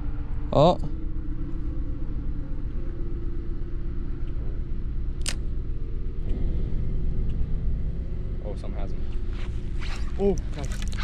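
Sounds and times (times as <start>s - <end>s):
motor rumbling and humming: 0.0s - 11.0s
sharp click: 5.2s - 5.4s.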